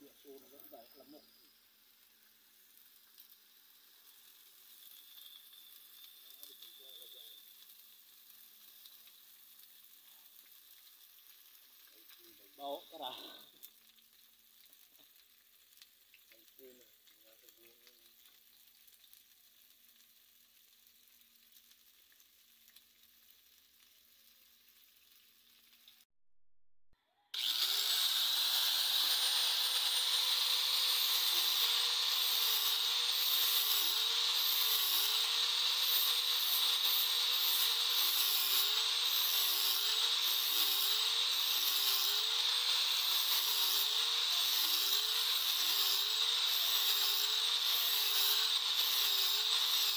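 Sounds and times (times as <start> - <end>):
hot blade hissing: 0.0 - 7.8, 27.4 - 49.9
angle grinder grinding steel: 4.2 - 7.6, 27.4 - 49.9.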